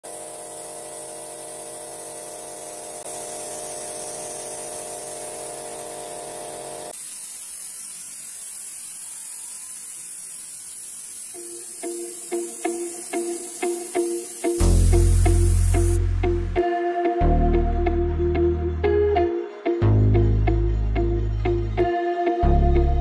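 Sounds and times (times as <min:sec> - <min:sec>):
air compressor humming: 0:00.0 - 0:16.7
paint spray gun hissing: 0:00.0 - 0:16.7.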